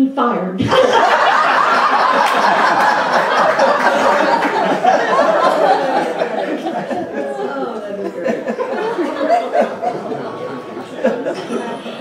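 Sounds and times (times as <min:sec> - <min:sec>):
audience laughing: 0:00.6 - 0:12.0.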